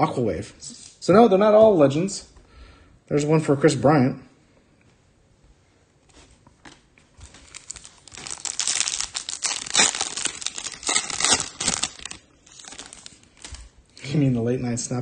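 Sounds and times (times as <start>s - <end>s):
foil wrapper crinkling: 7.2s - 13.7s.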